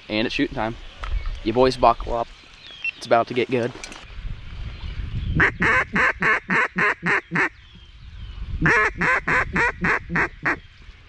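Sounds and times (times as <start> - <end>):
duck call quacks: 5.4 - 7.5, 8.6 - 10.6.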